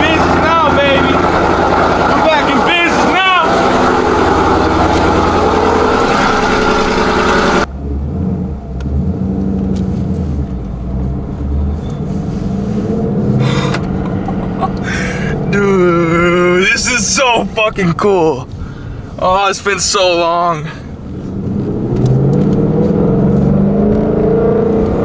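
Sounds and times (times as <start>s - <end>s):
engine drone inside cabin: 0.0s - 17.7s
loud car engine running: 0.0s - 19.4s, 20.2s - 25.0s.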